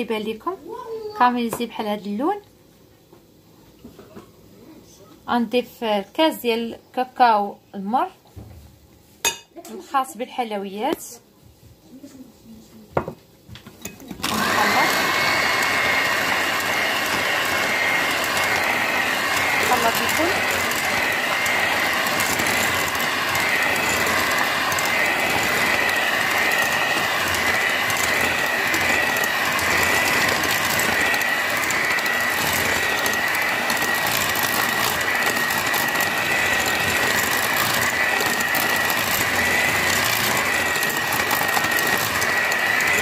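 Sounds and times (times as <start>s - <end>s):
electric hand mixer whining: 14.0s - 43.0s.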